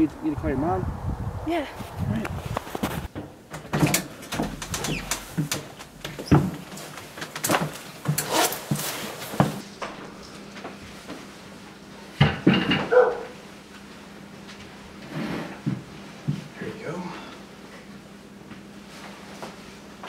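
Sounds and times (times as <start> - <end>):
footsteps: 1.7 - 3.2
door opening and shutting: 3.1 - 6.8.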